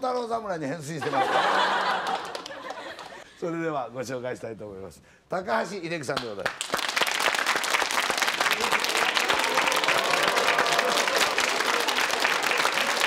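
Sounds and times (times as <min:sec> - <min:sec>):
audience applauding: 0:01.6 - 0:03.2, 0:06.4 - 0:13.0.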